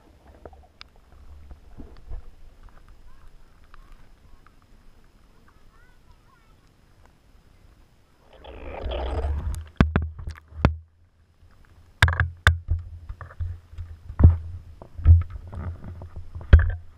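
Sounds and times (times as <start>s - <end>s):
water rushing and splashing: 8.2s - 9.8s.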